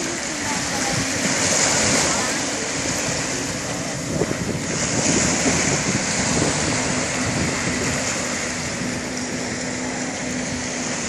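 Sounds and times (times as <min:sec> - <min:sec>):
distant personal watercraft engine: 0:00.0 - 0:11.0
surf: 0:00.0 - 0:11.0
wind: 0:00.0 - 0:11.0.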